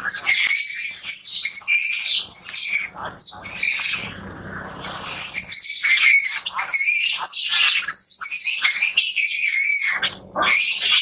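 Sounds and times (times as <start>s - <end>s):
monkey screaming: 4.9s - 11.0s.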